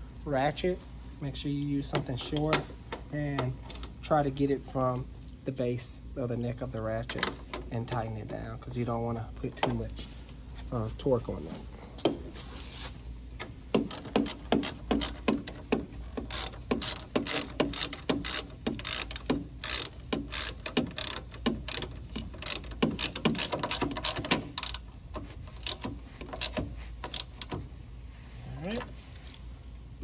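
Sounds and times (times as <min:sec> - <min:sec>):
socket ratchet clicking: 0:13.4 - 0:27.7.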